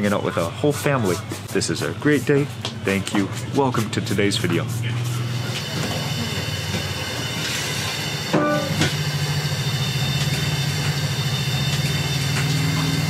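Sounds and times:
low engine drone: 4.2 - 13.0
brief high-pitched tone: 8.3 - 9.0.

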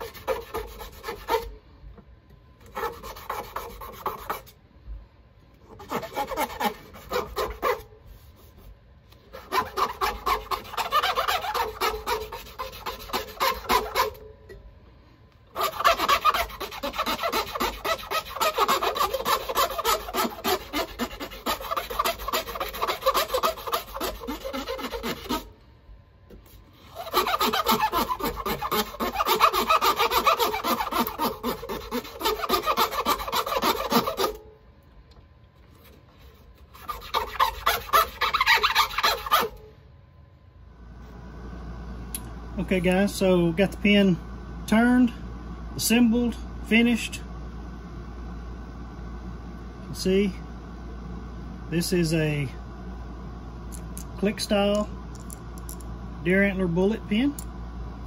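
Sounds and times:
scratchy rasping sanding on lathe: 0.0 - 1.4, 2.7 - 4.4, 5.8 - 7.8, 9.4 - 14.2, 15.6 - 25.5, 26.9 - 34.4, 36.8 - 39.5.

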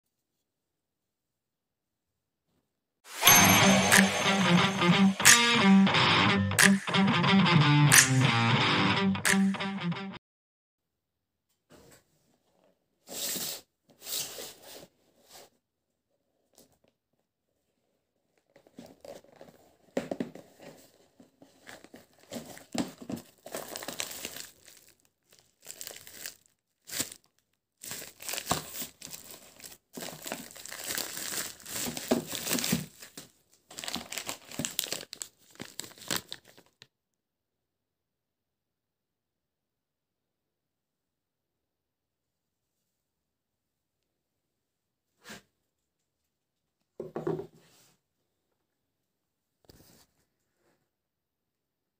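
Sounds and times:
bubble wrap crinkling: 18.4 - 36.8.

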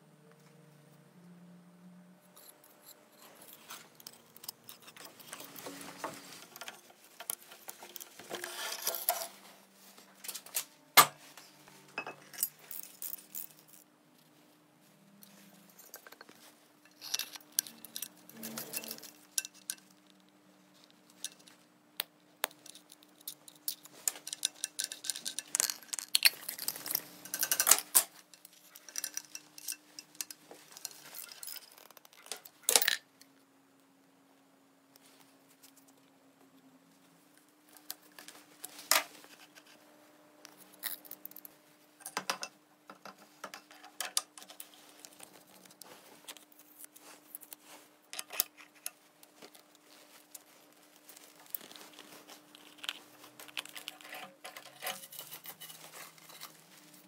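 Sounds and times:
metal parts clinking: 12.0 - 13.8, 15.8 - 20.0, 22.6 - 33.0.

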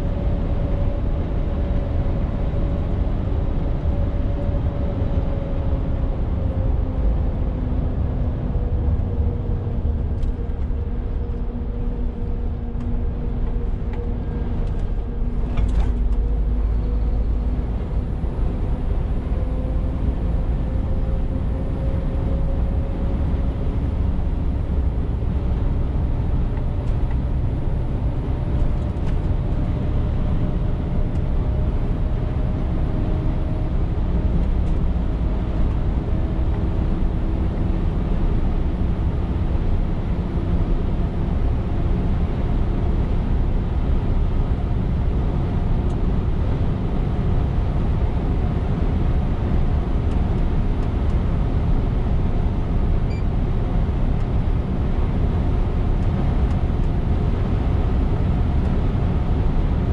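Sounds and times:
road and tyre rumble: 0.0 - 59.9.

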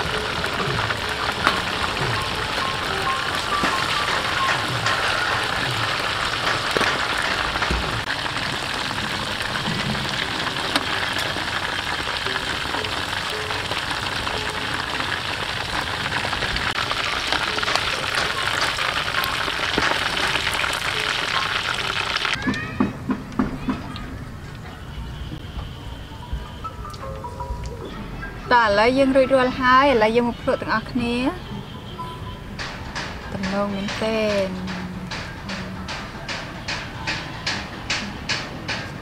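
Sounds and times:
oil sizzling while deep-frying: 0.0 - 22.6.

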